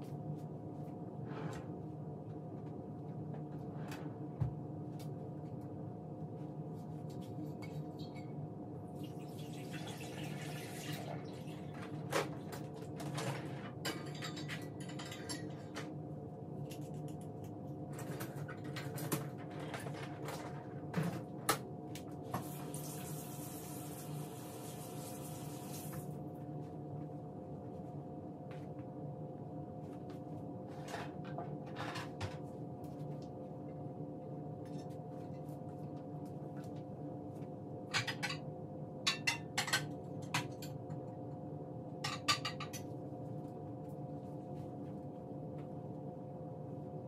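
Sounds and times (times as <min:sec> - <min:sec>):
tap water running: 0:09.0 - 0:11.4, 0:22.4 - 0:26.1
steady low hum: 0:26.0 - 0:47.0
dishes clinking: 0:37.9 - 0:38.4, 0:42.0 - 0:42.9.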